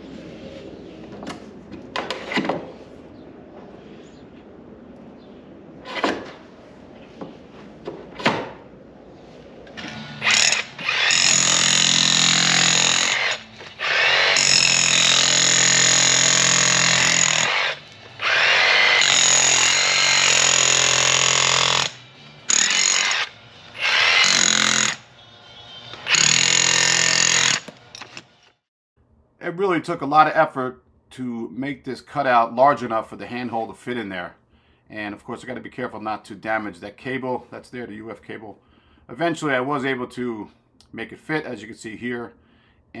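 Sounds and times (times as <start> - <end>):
cordless power tool running: 9.8 - 25.0.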